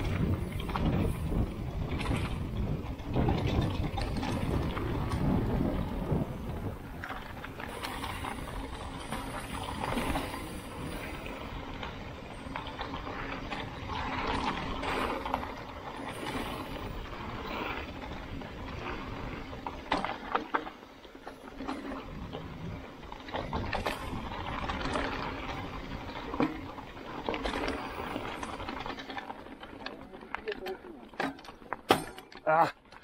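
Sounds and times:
wind on microphone: 0:00.0 - 0:15.5
bike chain and frame rattling: 0:00.0 - 0:33.0
bike tyres rolling over dirt: 0:00.0 - 0:33.0.

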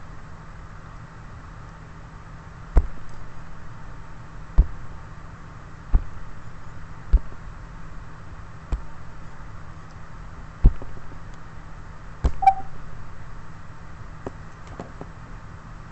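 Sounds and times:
steady low hum: 0:00.0 - 0:15.9
short beep: 0:12.4 - 0:12.8.

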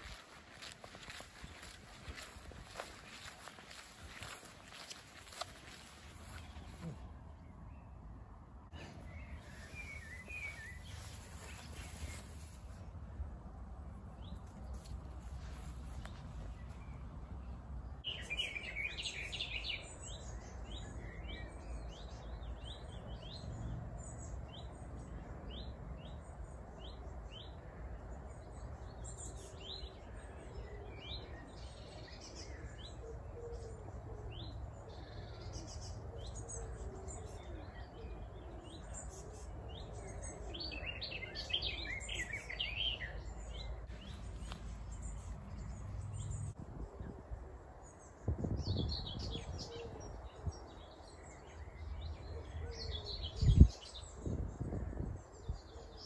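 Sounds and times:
steady low rumble: 0:43.2 - 0:50.6.

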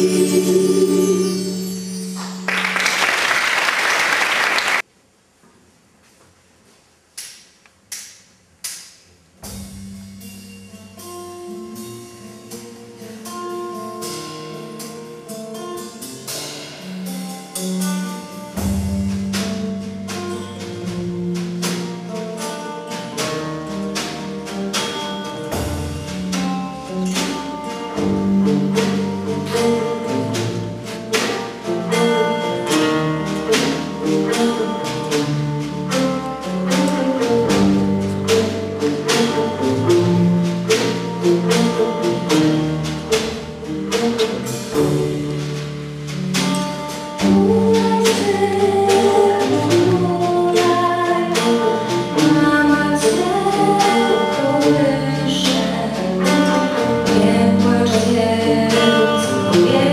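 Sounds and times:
sustained bass notes: 0:00.0 - 0:02.2
acoustic guitars strumming: 0:00.0 - 0:03.0, 0:10.2 - 0:59.9
plucked notes: 0:00.0 - 0:03.1, 0:09.5 - 0:59.9
applause: 0:02.2 - 0:04.8.

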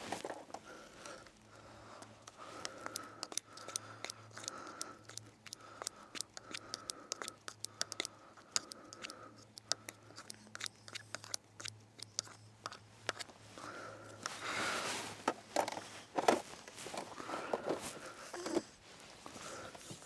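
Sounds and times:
sharp clicks and snips: 0:01.0 - 0:13.3.

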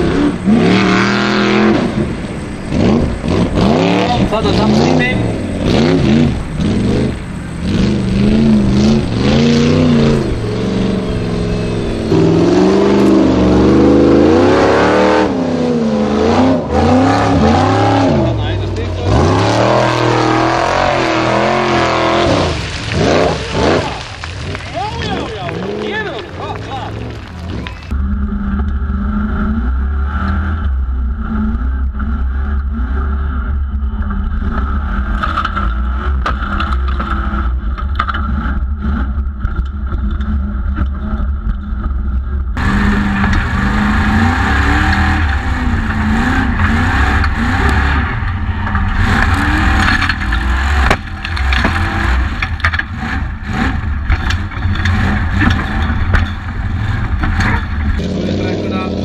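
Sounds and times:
engine revving: 0:00.0 - 0:41.3, 0:42.2 - 0:59.0
tyres on gravel: 0:16.9 - 0:28.0, 0:42.6 - 0:59.0
chassis knocks and rattles: 0:48.2 - 0:53.2, 0:53.8 - 0:58.1.

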